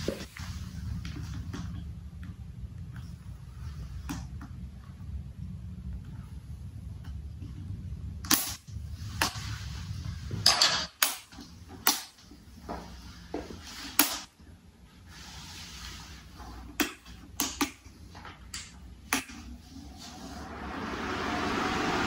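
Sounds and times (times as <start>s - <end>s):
low hum: 14.4s - 22.0s.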